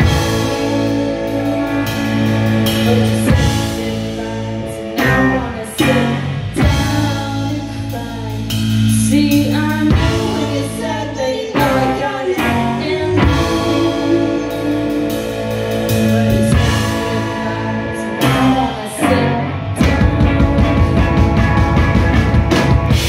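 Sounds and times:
woman singing: 0.0s - 22.0s
drum kit: 0.0s - 23.0s
electric guitars: 0.0s - 23.0s.

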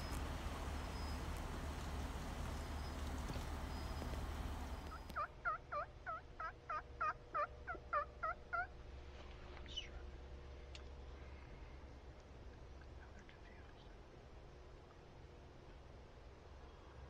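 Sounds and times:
steady low rush: 0.0s - 5.2s
wild turkey yelping: 0.0s - 8.7s.

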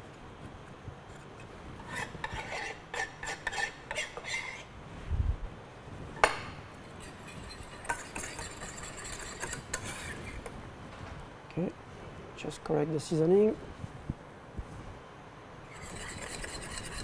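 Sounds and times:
wire whisk scraping a saucepan: 1.8s - 4.7s, 6.9s - 10.4s, 15.7s - 17.0s.

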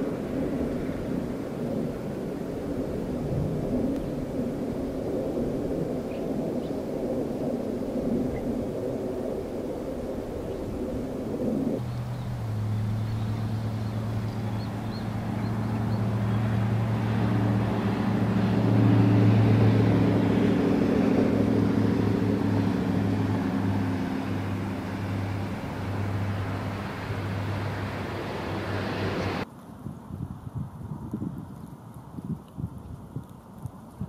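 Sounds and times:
engine running with low hum: 11.1s - 29.5s.

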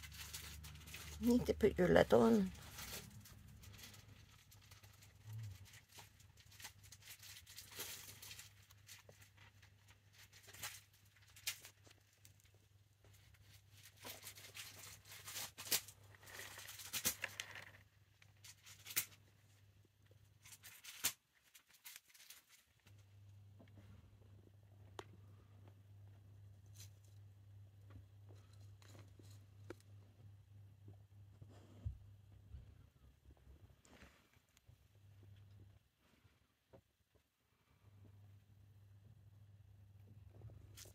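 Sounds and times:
rustling in cage bedding: 0.0s - 25.5s.

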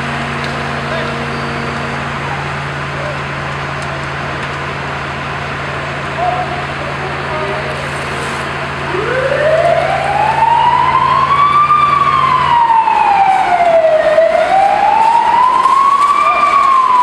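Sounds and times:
siren wailing: 8.8s - 17.0s.

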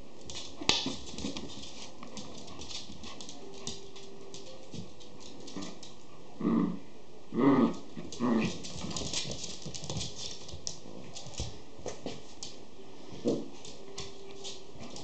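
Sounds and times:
dogs growling: 5.5s - 8.9s.

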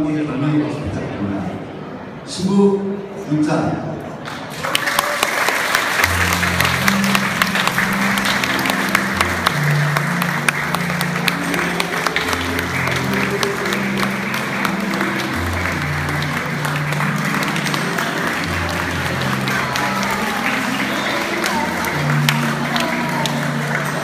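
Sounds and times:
crowd applauding: 4.2s - 24.0s
slow instrumental music: 5.0s - 24.0s.

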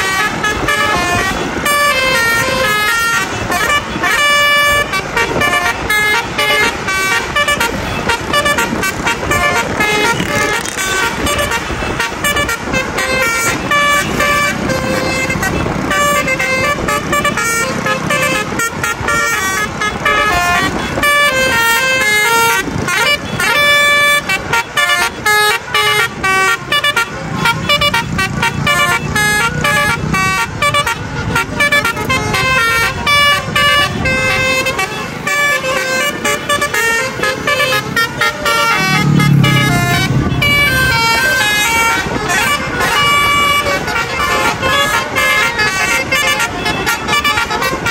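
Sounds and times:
musical air horns playing tunes: 0.0s - 47.9s.

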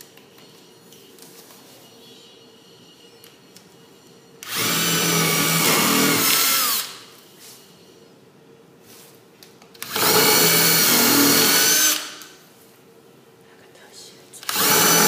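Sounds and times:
cordless drill drilling into wood: 4.4s - 7.0s, 9.8s - 12.1s, 14.5s - 15.0s.

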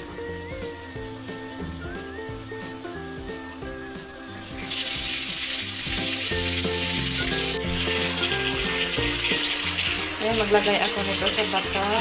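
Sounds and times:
light background music: 0.0s - 12.0s
tap water gushing into bathtub: 4.3s - 12.0s.

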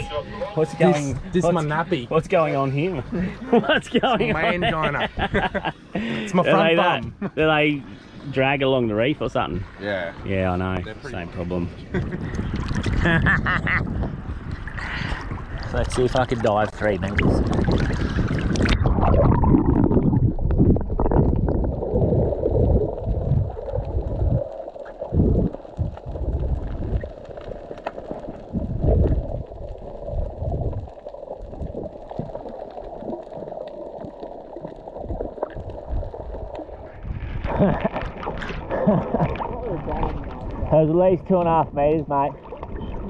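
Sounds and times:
underwater rushing: 0.0s - 43.0s
muffled underwater gurgling: 13.8s - 43.0s
water splash: 14.6s - 40.8s.

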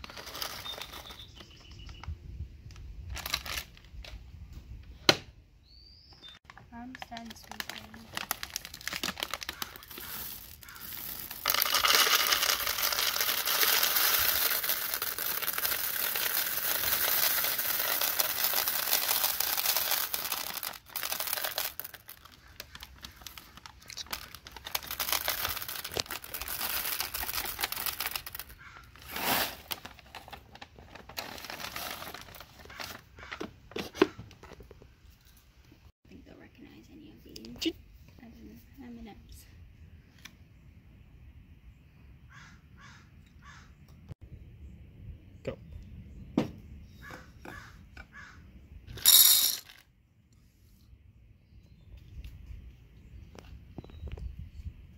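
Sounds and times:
candies rattling into bin: 0.0s - 1.4s, 6.9s - 33.1s, 49.0s - 49.8s
plastic bag crinkling: 0.0s - 1.4s, 3.1s - 4.0s, 6.5s - 33.4s.

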